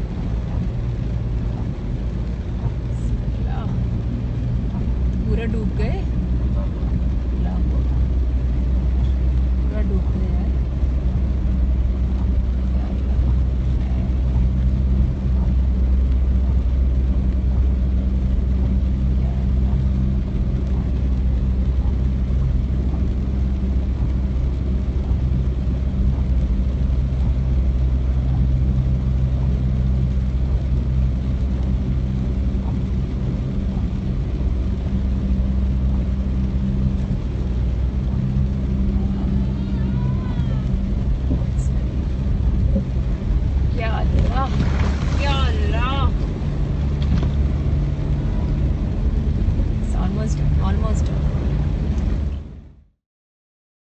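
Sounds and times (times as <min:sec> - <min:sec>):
car engine running: 0:00.0 - 0:53.0
water washing against car: 0:00.0 - 0:53.0.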